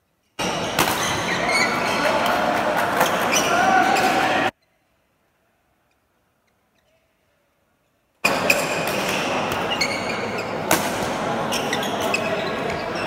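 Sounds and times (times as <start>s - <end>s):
crowded sports hall noise: 0.0s - 13.0s
badminton rackets striking shuttlecock: 0.4s - 1.4s, 8.2s - 10.0s, 10.7s - 11.2s.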